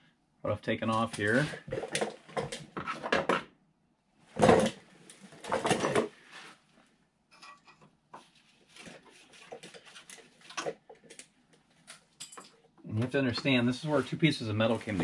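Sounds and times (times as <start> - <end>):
faint scrapes and taps: 7.4 - 11.7
sweatshirt brushing microphone: 13.3 - 15.0.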